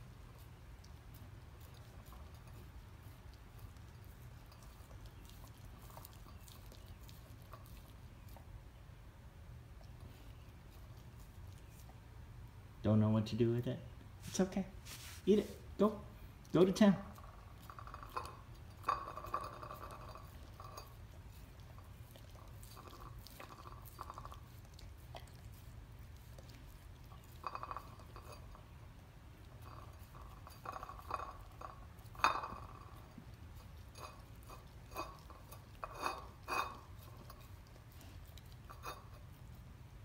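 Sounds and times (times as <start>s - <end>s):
dog licking and gnawing: 0.0s - 8.8s, 9.5s - 12.2s, 16.4s - 40.0s
clinks against ceramic plate: 17.7s - 21.0s, 29.6s - 33.0s, 34.0s - 37.4s.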